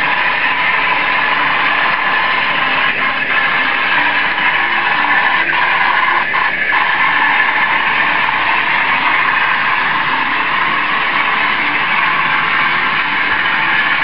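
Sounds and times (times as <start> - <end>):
model train whirring on track: 0.0 - 14.0.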